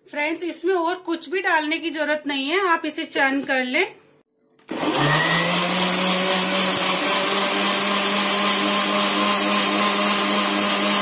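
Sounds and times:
mixer grinder motor running: 4.7 - 11.0.

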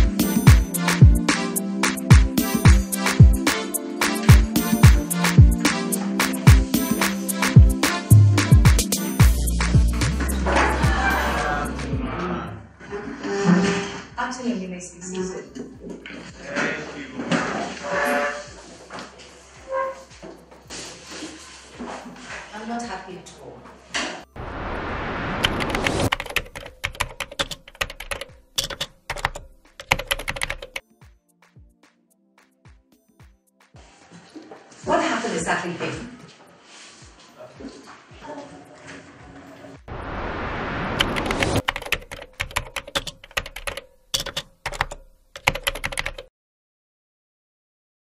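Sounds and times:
whoosh: 24.3 - 26.1, 39.9 - 41.6
keyboard key clicks: 26.1 - 30.8, 41.6 - 46.2.

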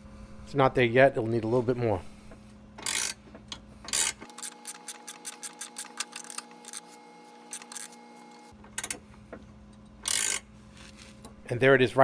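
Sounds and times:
ratcheting wrench clicking: 2.8 - 6.8, 8.7 - 9.0, 9.8 - 10.5.

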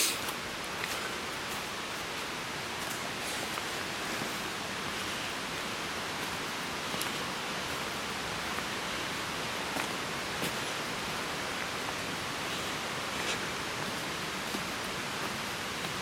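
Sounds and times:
rushing hiss: 0.0 - 1.8.

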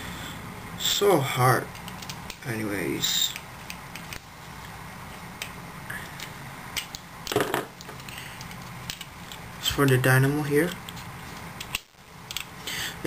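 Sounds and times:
plastic parts clicking: 1.7 - 2.4, 6.2 - 10.0, 11.6 - 12.5.

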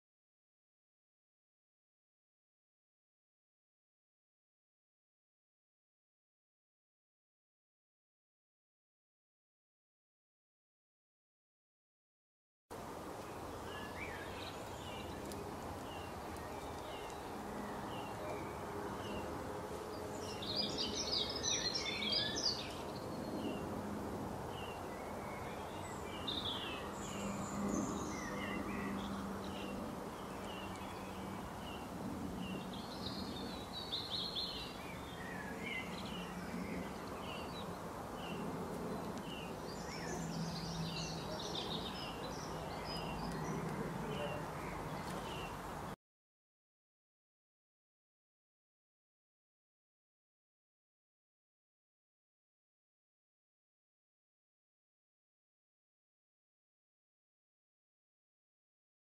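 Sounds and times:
bird song phrase: 13.2 - 23.7, 24.5 - 45.7.

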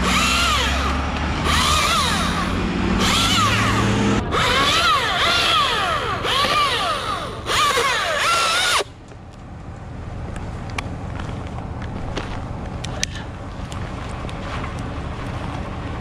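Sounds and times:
electric chainsaw cutting wood: 0.0 - 8.9.

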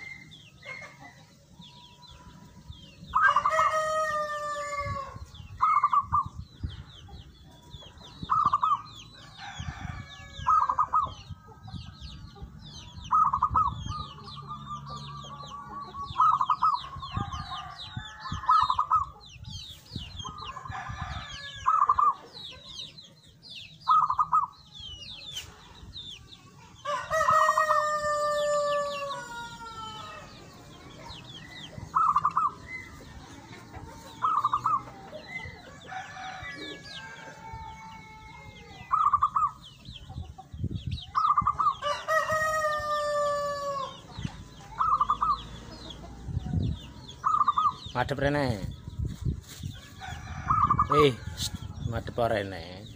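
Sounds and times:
small birds chirping: 0.0 - 52.9
dove trilled cooing: 5.6 - 6.4, 10.4 - 11.4, 12.9 - 17.4, 23.8 - 24.6, 31.0 - 33.0, 33.8 - 36.8, 38.6 - 39.8, 41.1 - 42.1, 44.7 - 46.5, 47.2 - 47.9.

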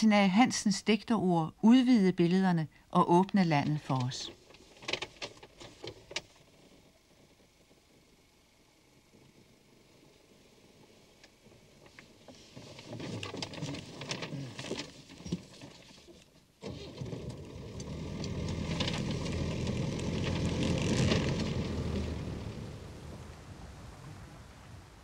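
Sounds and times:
paper map crackling: 3.4 - 6.8, 11.7 - 16.4, 17.8 - 22.3
car engine and tyres running: 14.6 - 25.0.

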